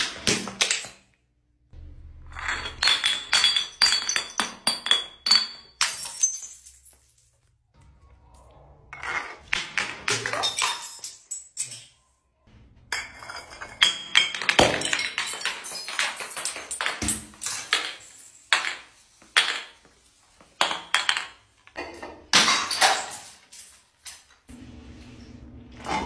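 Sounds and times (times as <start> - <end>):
glass bottles shattering on stairs: 0.0 - 1.1, 2.0 - 7.6, 9.0 - 12.2, 12.9 - 24.4.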